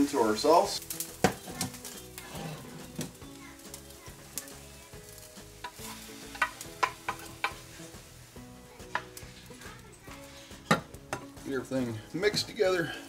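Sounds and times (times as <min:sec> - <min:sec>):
light sizzle: 0:00.0 - 0:13.0
wooden spatula scraping pan: 0:00.8 - 0:03.2, 0:05.1 - 0:08.2, 0:08.8 - 0:13.0
wood knocking against pan: 0:01.2 - 0:01.8, 0:05.6 - 0:07.7, 0:08.8 - 0:09.2, 0:10.6 - 0:11.4.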